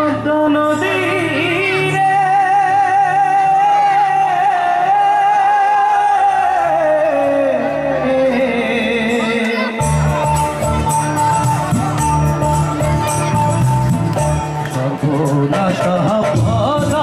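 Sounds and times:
man singing with vibrato: 0.0s - 11.3s, 14.7s - 17.0s.

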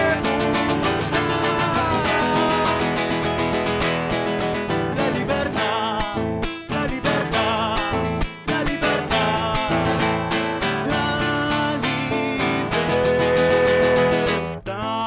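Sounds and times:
strummed acoustic guitar: 0.0s - 15.0s.

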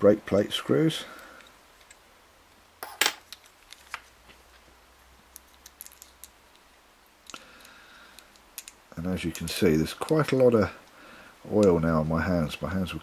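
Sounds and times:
small metallic clicks of reel parts: 1.1s - 2.0s, 5.3s - 11.0s.

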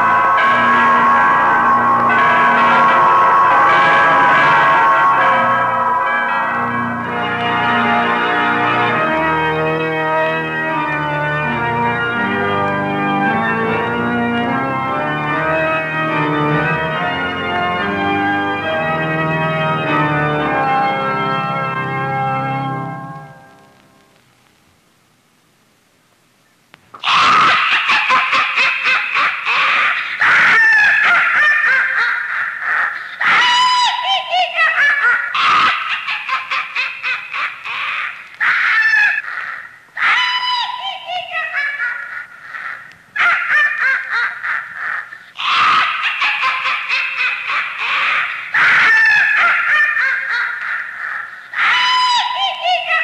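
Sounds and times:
crowd of animal-like cries: 0.0s - 8.4s, 27.0s - 28.2s, 29.5s - 36.1s, 37.0s - 53.0s
loud laughter with shrieks: 0.0s - 9.1s, 27.0s - 53.0s
faint click: 26.7s - 26.9s.

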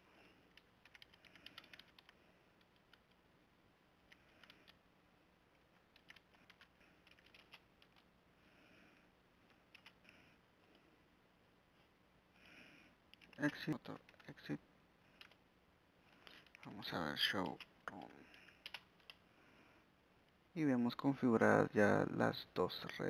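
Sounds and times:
faint keyboard typing: 0.2s - 3.3s, 4.0s - 4.8s, 5.5s - 8.2s, 8.9s - 10.9s, 13.0s - 19.3s.

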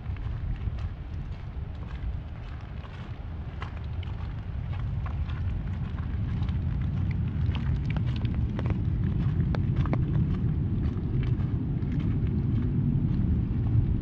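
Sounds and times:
steady low rumble: 0.0s - 14.0s
raindrops tapping on umbrella: 2.6s - 12.4s.

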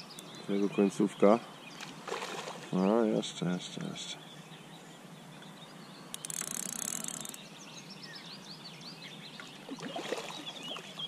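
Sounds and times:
birds chirping: 0.0s - 11.0s
fishing reel drag clicking: 6.1s - 7.4s.

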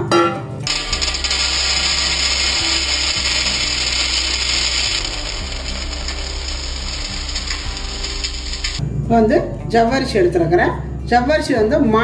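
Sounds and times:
dry lentils pouring into steel bowl: 0.7s - 8.8s.

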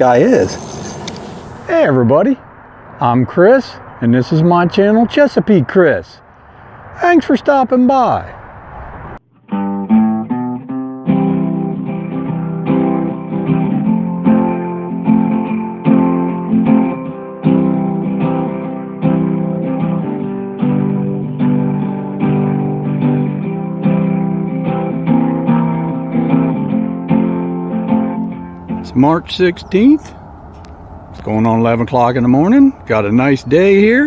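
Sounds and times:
guitar music: 9.2s - 31.2s.

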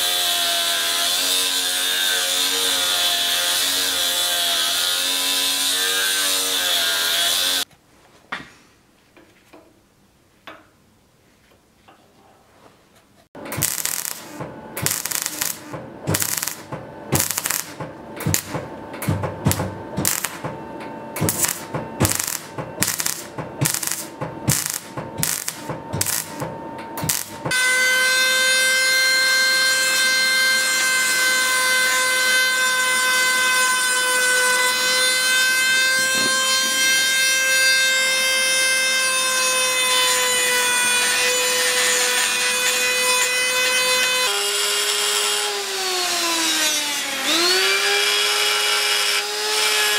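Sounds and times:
welding arc crackling: 13.6s - 18.7s, 19.3s - 20.5s, 21.2s - 27.5s.

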